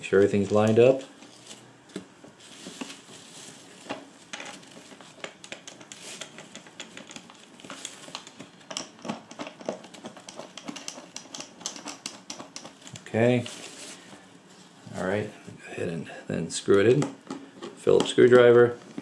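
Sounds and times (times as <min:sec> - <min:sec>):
fabric liner rustling: 0:02.3 - 0:05.1, 0:12.8 - 0:15.3.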